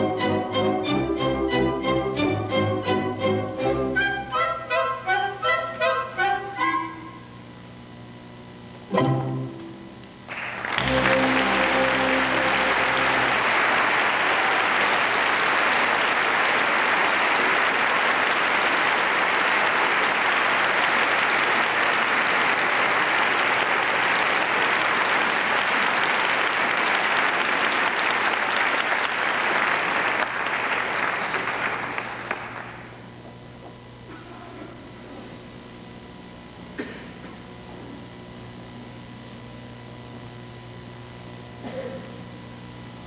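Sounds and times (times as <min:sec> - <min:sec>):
orchestra closing chords: 0:00.0 - 0:07.4, 0:08.9 - 0:15.0
audience applause: 0:10.3 - 0:33.0.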